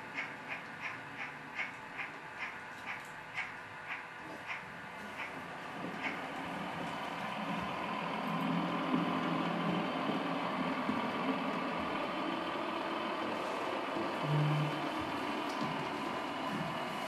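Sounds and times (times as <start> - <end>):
model train engine drone: 0.0 - 17.0.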